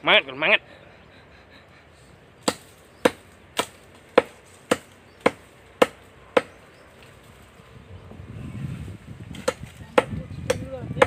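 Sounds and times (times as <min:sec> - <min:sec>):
blade chopping into tree trunk: 0:02.4 - 0:06.6, 0:09.3 - 0:10.6.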